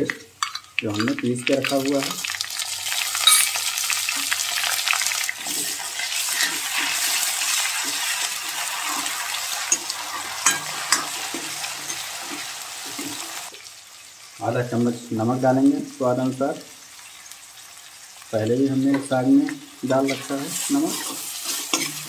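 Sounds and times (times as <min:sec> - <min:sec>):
onions sizzling in hot oil: 0:00.0 - 0:22.0
ladle scraping metal pan: 0:20.0 - 0:22.0.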